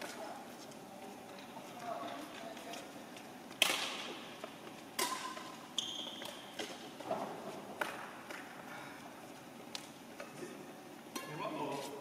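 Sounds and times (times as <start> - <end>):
racket hitting shuttlecock: 3.6 - 4.2, 5.0 - 5.6, 6.2 - 8.5
shoe squeak: 5.7 - 6.5.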